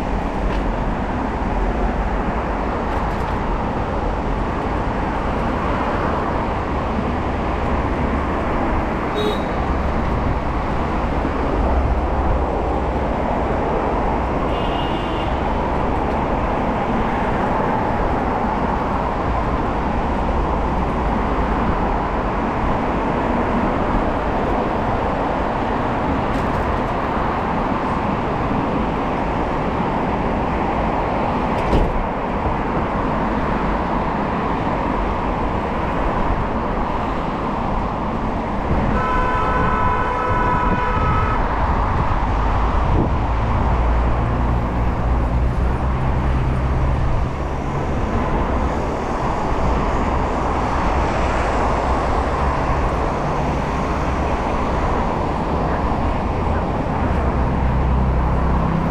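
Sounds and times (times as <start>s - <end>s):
city road traffic: 0.0s - 58.9s
vehicle horn: 9.1s - 9.7s, 14.5s - 15.4s, 38.9s - 41.7s
passing vehicle engine hum: 39.7s - 58.9s.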